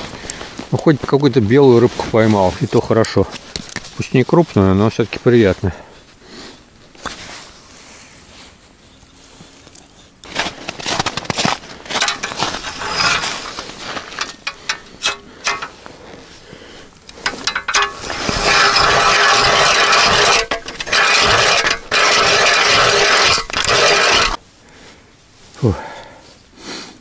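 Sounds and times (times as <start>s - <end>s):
scrapes and clicks: 9.7s - 15.9s, 17.0s - 24.4s
ice auger grinding ice: 11.9s - 15.8s, 17.1s - 24.4s.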